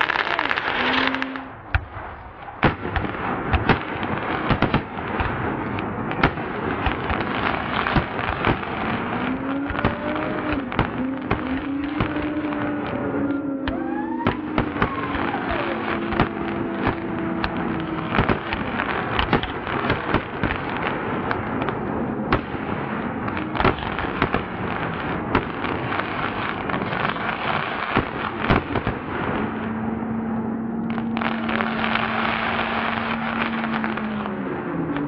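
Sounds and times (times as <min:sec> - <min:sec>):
fireworks crackling: 0:00.0 - 0:35.0
sharp fireworks bangs: 0:00.0 - 0:35.0
falling whistle: 0:13.6 - 0:15.8.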